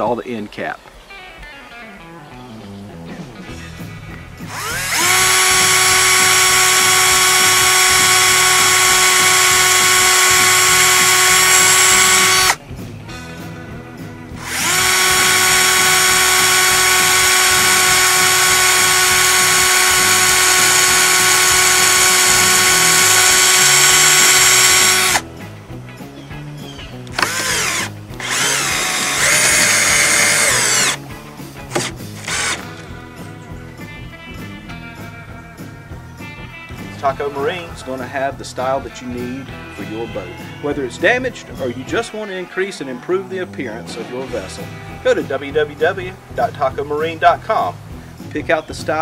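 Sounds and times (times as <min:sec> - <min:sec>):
cordless drill whining: 0:04.5 - 0:12.6, 0:14.4 - 0:25.2, 0:27.1 - 0:31.0, 0:31.7 - 0:32.9.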